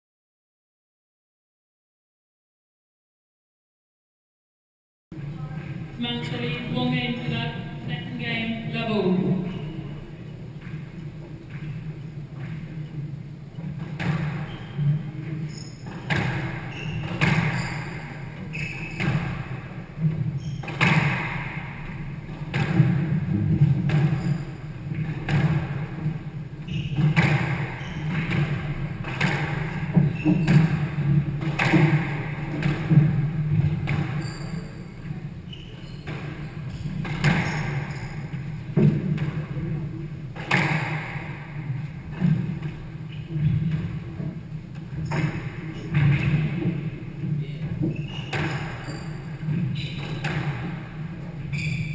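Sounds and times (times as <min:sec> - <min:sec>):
shoes squeaking on wooden floor: 0:09.1 - 0:20.9, 0:21.9 - 0:39.5, 0:41.6 - 0:51.9
squash ball hits: 0:13.6 - 0:34.7, 0:36.0 - 0:44.1, 0:44.7 - 0:51.9.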